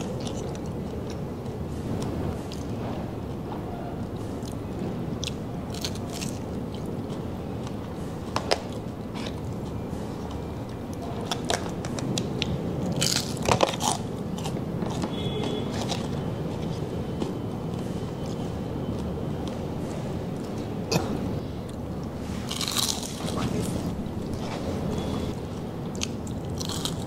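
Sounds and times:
person chewing crispy pork skin: 0:12.9 - 0:15.0, 0:22.5 - 0:23.4, 0:25.9 - 0:27.0.

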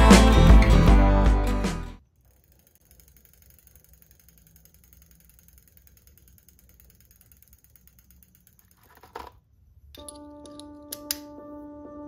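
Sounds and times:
bicycle freewheel ticking: 0:02.1 - 0:09.0.

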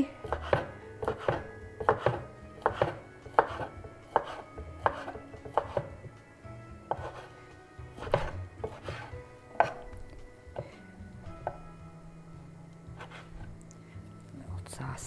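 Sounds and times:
knife tapping on cutting board: 0:00.2 - 0:05.9, 0:06.9 - 0:07.1.

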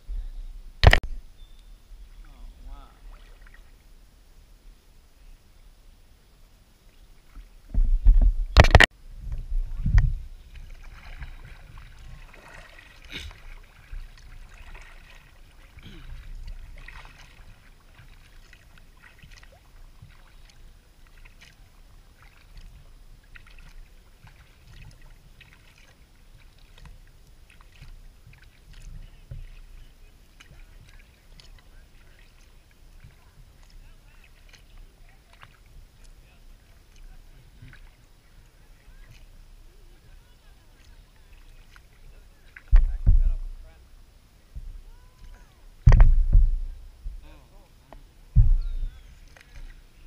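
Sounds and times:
light ticks and splashes: 0:00.8 - 0:03.8, 0:08.6 - 0:43.8, 0:47.8 - 0:50.0
paddle strokes moving water: 0:00.8 - 0:50.0
knocks and thumps on kayak: 0:07.7 - 0:14.9, 0:42.6 - 0:43.5, 0:45.8 - 0:47.3, 0:48.3 - 0:49.7.

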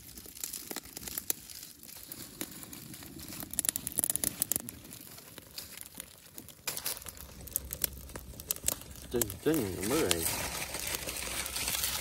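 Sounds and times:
fire crackling: 0:00.0 - 0:12.0
leaves rustling: 0:08.6 - 0:12.0.

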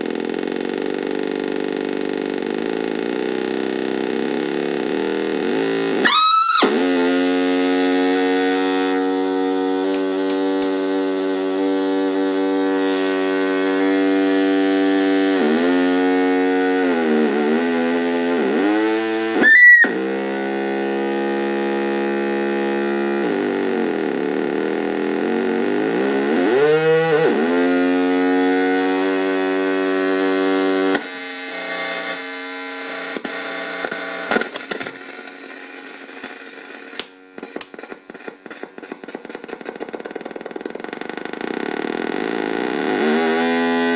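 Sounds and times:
buzzy synthesizer drone: 0:00.0 - 0:43.9
sharp high squeal: 0:06.0 - 0:06.7, 0:19.4 - 0:20.0
crackling sputtering clicking: 0:33.1 - 0:42.6.

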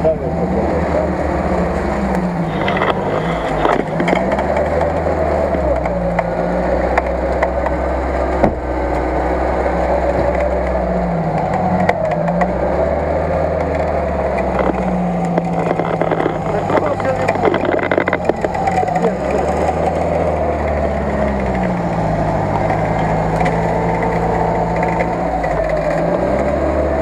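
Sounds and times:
engine running steadily: 0:00.0 - 0:27.0
winch clicks and knocks: 0:13.6 - 0:18.9.

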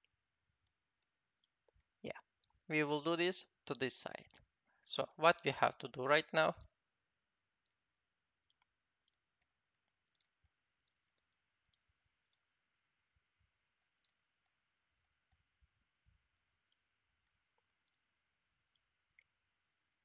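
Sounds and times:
computer mouse clicks: 0:08.4 - 0:12.5, 0:14.0 - 0:15.4, 0:16.6 - 0:19.3.

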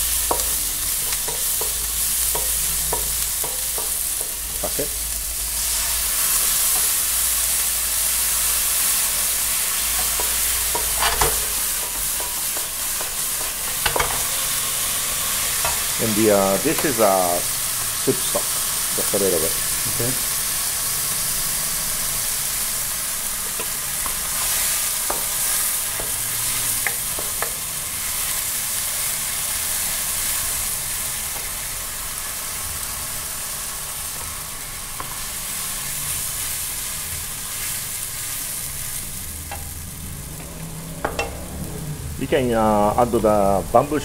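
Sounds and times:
food sizzling in a wok: 0:00.0 - 0:44.0
spatula knocking against pan: 0:00.3 - 0:04.8.

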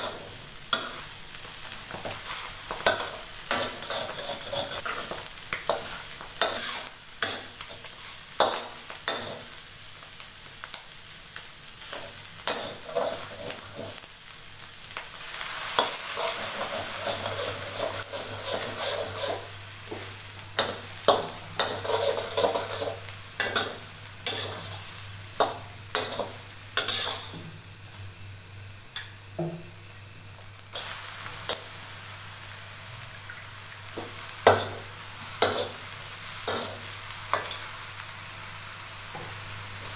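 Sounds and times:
food sizzling in hot oil: 0:00.0 - 0:39.9
metal spatula scraping a wok: 0:02.0 - 0:07.4, 0:15.7 - 0:19.6, 0:20.6 - 0:25.0, 0:26.0 - 0:27.4.

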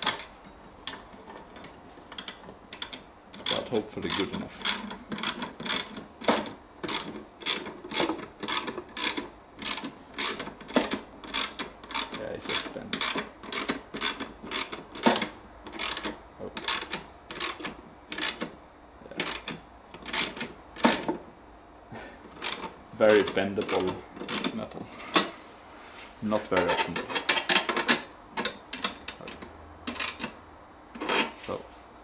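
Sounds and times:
ratchet wrench clicking: 0:02.2 - 0:18.5, 0:19.2 - 0:21.1, 0:22.4 - 0:24.6.

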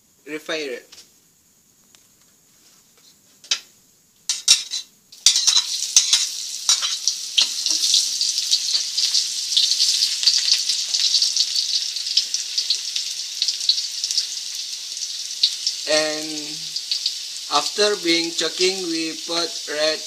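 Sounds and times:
onions sizzling and crackling in oil: 0:04.5 - 0:20.0.

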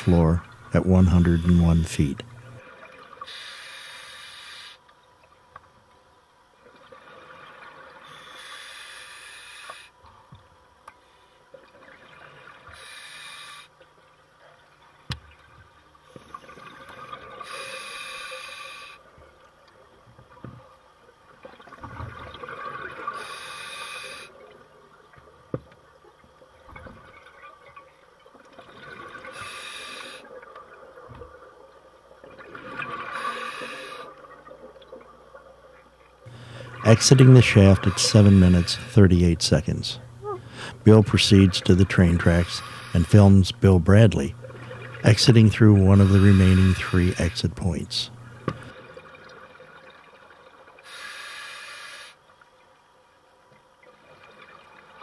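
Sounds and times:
regulator breathing hiss: 0:03.2 - 0:04.8, 0:08.0 - 0:10.0, 0:12.7 - 0:13.8, 0:17.4 - 0:19.1, 0:23.2 - 0:24.4, 0:29.3 - 0:30.3, 0:33.1 - 0:34.1, 0:36.3 - 0:39.2, 0:41.5 - 0:43.6, 0:45.6 - 0:48.5, 0:50.8 - 0:52.2
exhaled bubbles: 0:36.3 - 0:47.4.

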